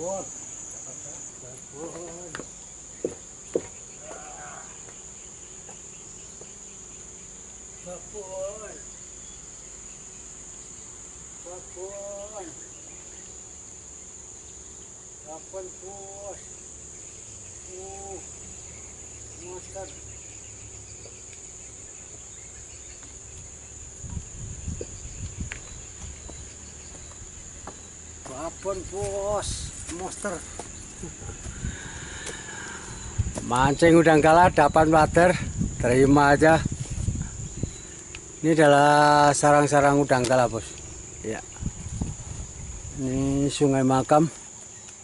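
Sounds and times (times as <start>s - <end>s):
insects buzzing: 0.0s - 45.0s
footstep on wooden plank: 1.9s - 3.8s, 24.7s - 30.8s, 33.3s - 33.6s.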